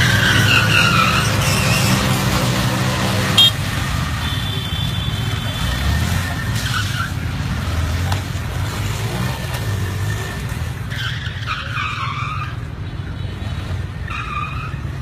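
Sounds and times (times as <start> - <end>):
tyres screeching in a skid: 0.0 - 4.2, 4.8 - 8.0, 8.7 - 12.8, 14.0 - 15.0.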